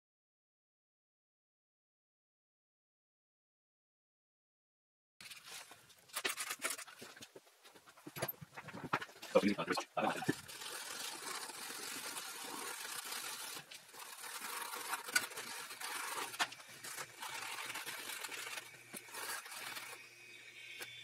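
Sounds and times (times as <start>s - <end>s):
towel scrubbing metal: 10.0s - 20.0s.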